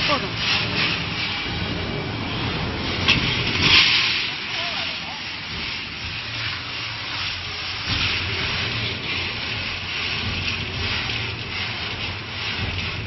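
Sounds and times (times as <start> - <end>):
low machine hum: 0.0 - 13.0
peanuts pouring into metal basin: 3.6 - 13.0.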